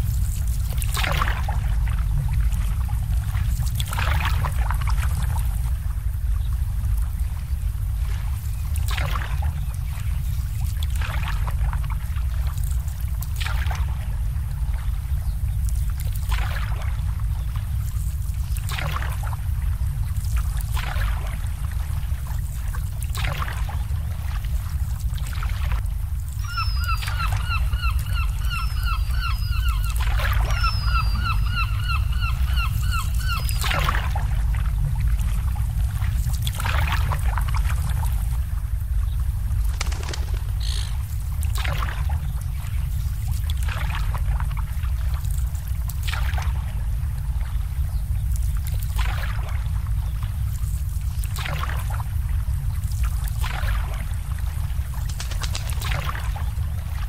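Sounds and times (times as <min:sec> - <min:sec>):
low rumble: 0:00.0 - 0:51.2
water lapping against boats: 0:00.0 - 0:57.0
bird calling repeated notes: 0:26.4 - 0:33.8, 0:39.8 - 0:41.1.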